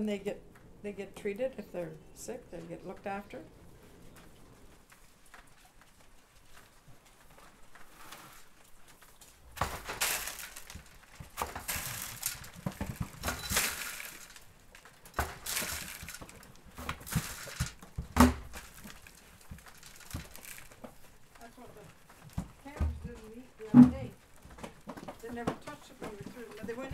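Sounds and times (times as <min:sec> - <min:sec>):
rubber pan scraping and rustling: 0:06.5 - 0:26.9.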